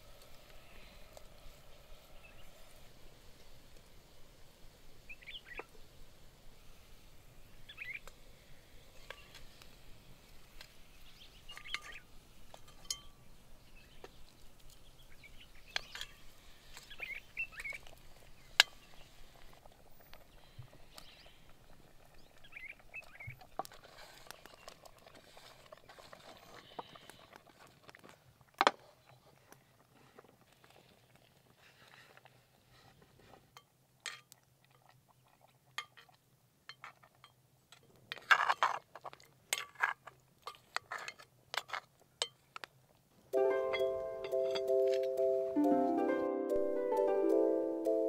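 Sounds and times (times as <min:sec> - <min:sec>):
faint outdoor ambience: 0:00.0 - 0:48.0.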